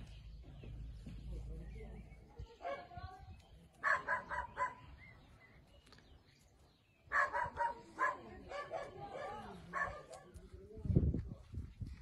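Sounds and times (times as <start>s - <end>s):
dog barking: 3.8s - 4.8s, 7.1s - 10.3s.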